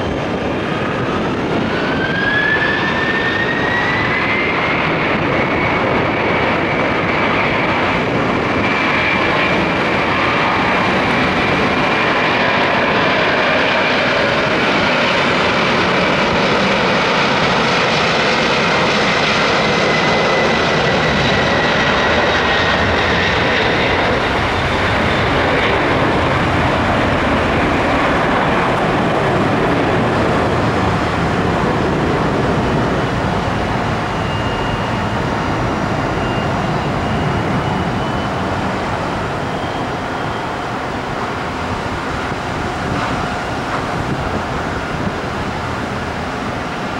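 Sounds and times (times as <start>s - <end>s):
high engine whine: 0.0s - 46.9s
jet engines at takeoff thrust: 0.0s - 46.9s.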